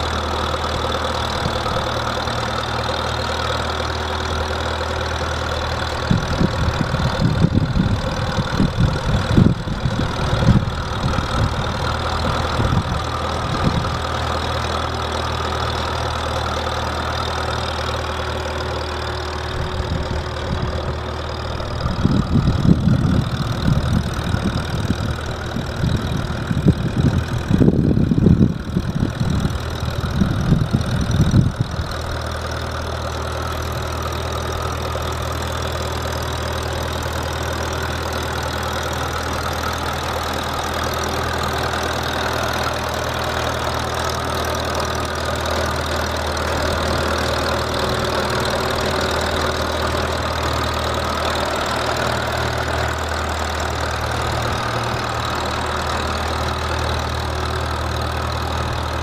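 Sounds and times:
tractor engine running: 0:00.0 - 0:59.0
wind buffeting microphone: 0:05.8 - 0:14.0, 0:19.5 - 0:32.2.

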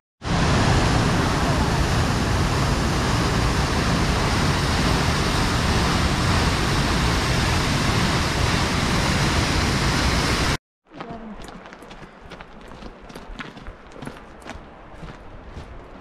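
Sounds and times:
waterfall roaring: 0:00.2 - 0:10.6.

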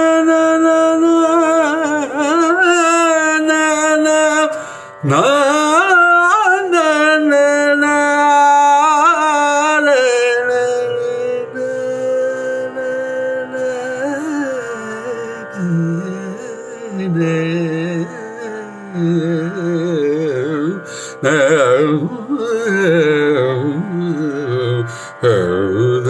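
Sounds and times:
man singing with pitch glides: 0:00.0 - 0:26.0.

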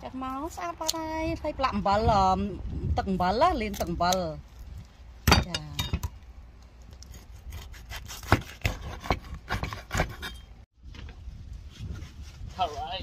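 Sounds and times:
cleaver chopping on wooden board: 0:07.5 - 0:10.3.

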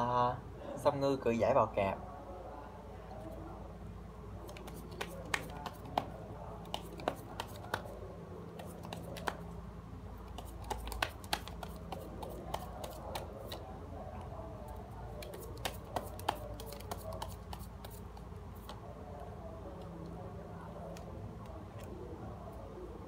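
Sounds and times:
cards clicking on a table: 0:04.4 - 0:06.1, 0:06.7 - 0:07.9, 0:08.6 - 0:09.4, 0:10.3 - 0:13.6.

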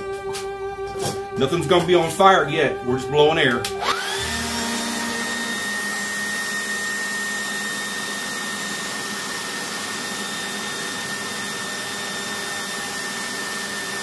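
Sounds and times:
high whine: 0:00.0 - 0:07.9
leaf blower running: 0:03.6 - 0:14.0.

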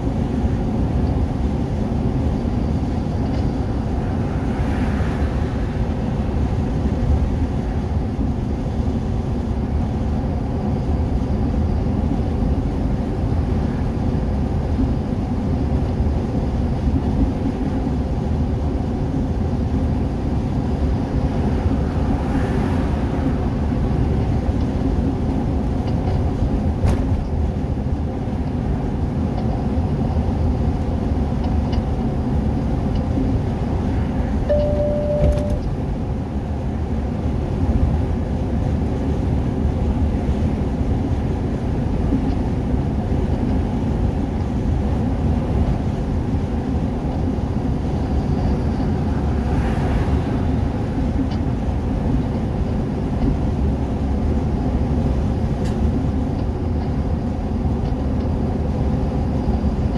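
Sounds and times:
vehicle engine and road noise: 0:00.0 - 0:59.9
short beep: 0:34.5 - 0:35.7.

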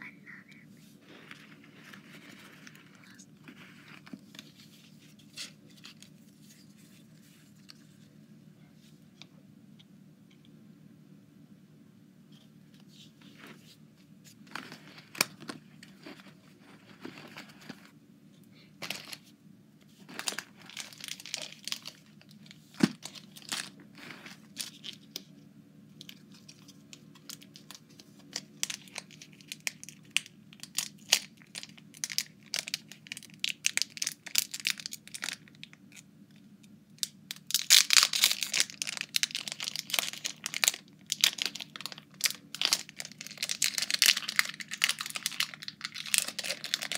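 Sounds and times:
foil wrapper crinkling and tearing: 0:20.0 - 0:25.2, 0:26.0 - 0:36.0, 0:37.0 - 0:46.9.

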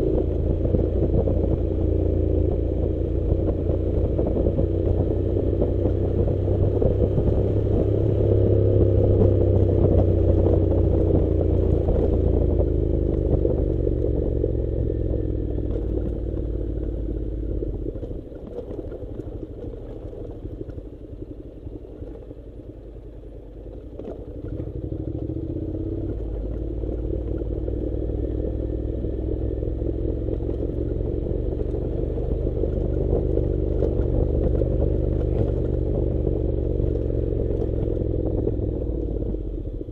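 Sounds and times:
motorcycle engine running: 0:00.0 - 0:39.9
gravel clattering under tyres: 0:15.6 - 0:27.5.

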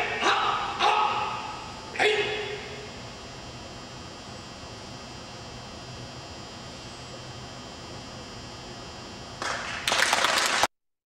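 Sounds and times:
gym hum: 0:00.0 - 0:10.7
audience applause: 0:09.4 - 0:10.7.

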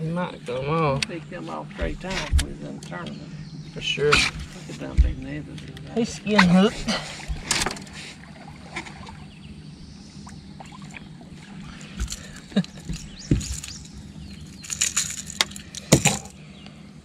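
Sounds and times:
steady low hum: 0:00.0 - 0:17.0
knocks and clicks on boat: 0:01.8 - 0:03.2, 0:04.0 - 0:08.0, 0:10.2 - 0:16.4.

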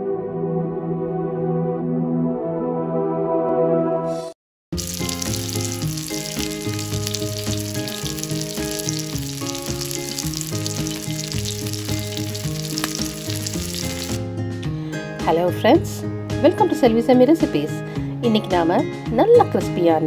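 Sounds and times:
background music low notes: 0:00.0 - 0:20.0
oil sizzling and crackling: 0:04.8 - 0:14.2.

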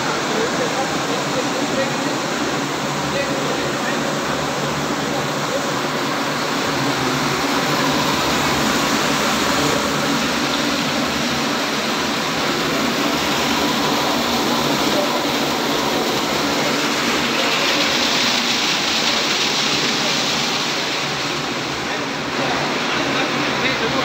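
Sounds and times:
machinery and rushing water roar: 0:00.0 - 0:24.0.

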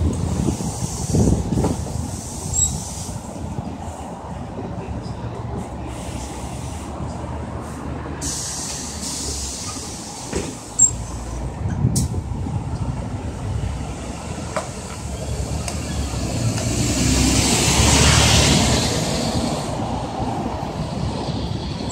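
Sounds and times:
bus engines rumbling: 0:00.0 - 0:21.9
air hiss: 0:00.3 - 0:03.4, 0:07.6 - 0:10.7.

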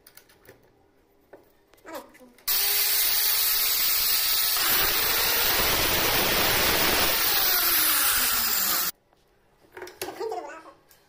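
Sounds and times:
electric saw cutting wood: 0:02.5 - 0:08.9.

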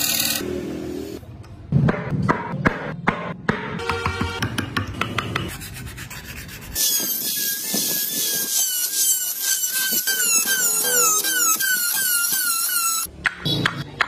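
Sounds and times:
rotary tool grinding wood: 0:06.4 - 0:13.1.

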